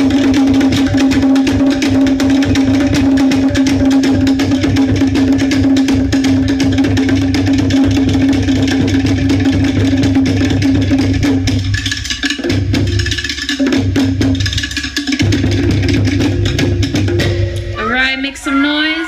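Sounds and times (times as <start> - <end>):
deep bass drum: 0.0 - 11.8, 15.2 - 17.8.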